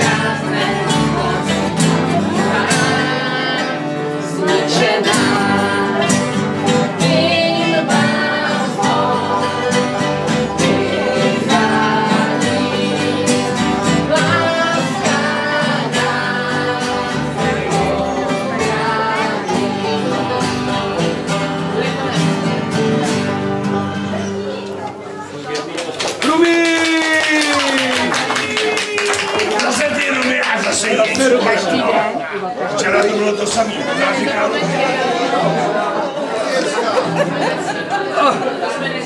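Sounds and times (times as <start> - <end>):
person singing: 0.0 - 24.5
acoustic guitars: 0.0 - 39.0.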